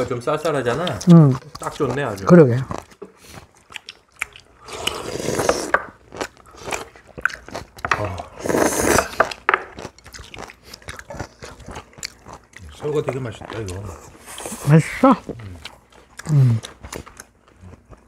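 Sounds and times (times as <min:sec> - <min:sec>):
chewing: 0:00.3 - 0:18.0
people slurping soup: 0:04.6 - 0:07.2, 0:07.9 - 0:09.5.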